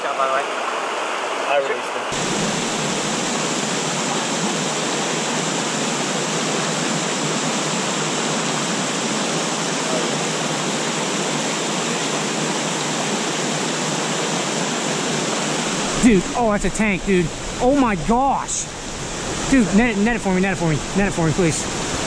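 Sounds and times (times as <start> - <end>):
water rushing over rocks: 0.0 - 22.0.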